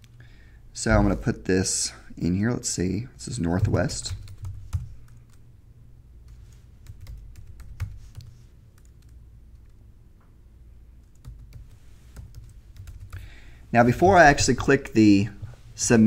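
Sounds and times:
computer keyboard typing: 3.6s - 5.4s, 6.3s - 9.8s, 11.0s - 13.2s.

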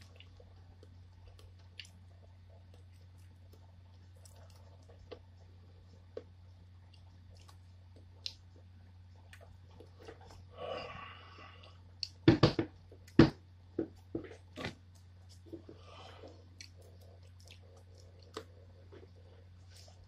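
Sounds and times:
lip smacks and mouth clicks: 6.9s - 8.6s, 16.5s - 18.6s
breathy hiss: 10.5s - 11.8s.

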